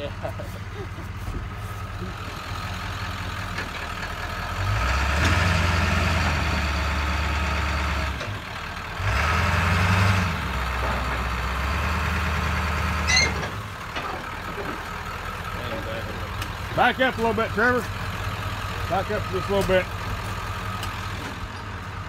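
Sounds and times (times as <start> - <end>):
vehicle engine revving: 4.5 - 13.1
high squeak: 13.1 - 13.4.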